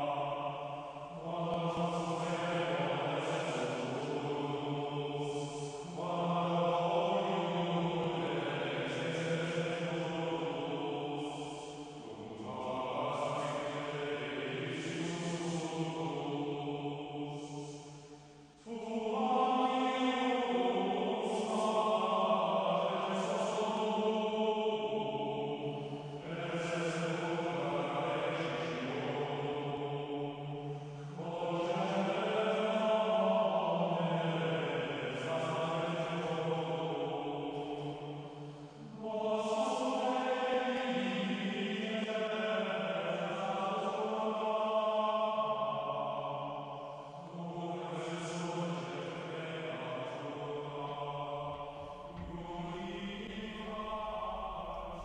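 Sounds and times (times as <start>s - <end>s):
slow chanting voices: 0.0s - 55.0s.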